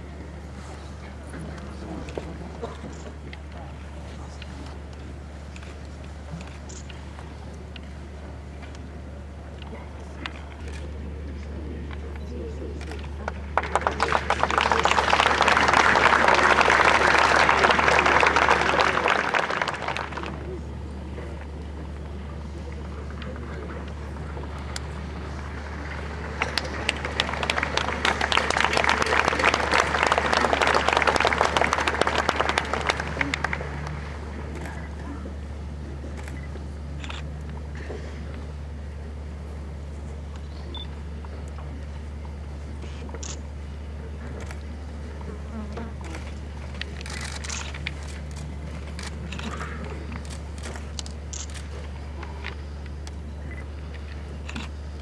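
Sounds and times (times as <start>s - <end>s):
steady low hum: 0.0s - 55.0s
crowd applause: 13.2s - 21.3s, 22.6s - 36.3s, 45.5s - 52.8s.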